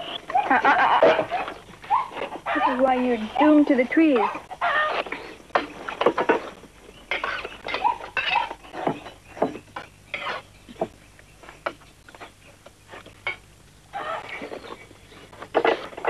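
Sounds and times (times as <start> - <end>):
cutlery clinking against dishes: 7.1 - 9.2.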